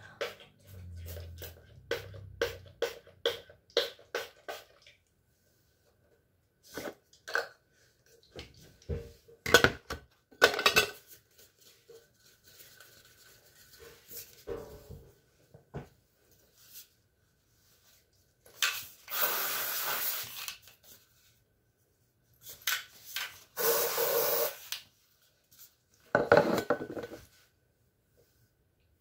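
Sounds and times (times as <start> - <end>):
perfume spray pumps: 19.1 - 20.4, 23.6 - 24.8.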